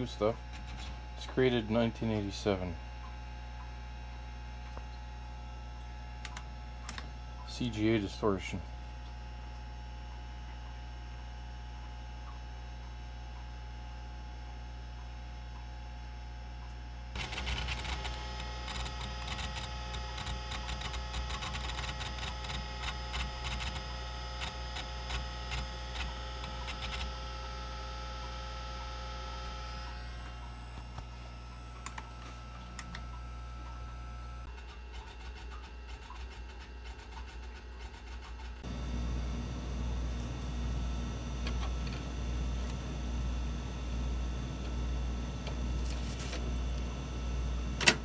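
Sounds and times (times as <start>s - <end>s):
computer hum: 0.0s - 48.0s
hard drive clicking: 17.2s - 27.2s, 30.1s - 33.8s, 38.3s - 48.0s.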